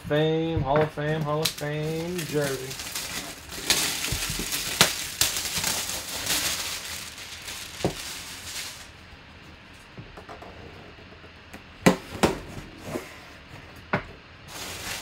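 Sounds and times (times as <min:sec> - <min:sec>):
plastic shrink wrap crinkling: 0:01.2 - 0:09.1, 0:14.5 - 0:15.0.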